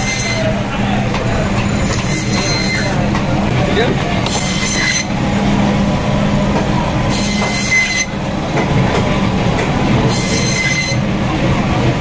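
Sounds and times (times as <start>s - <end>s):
saw blade whine cutting fish: 0.0s - 6.1s, 7.0s - 8.2s, 10.0s - 11.1s
band saw humming: 0.0s - 11.2s.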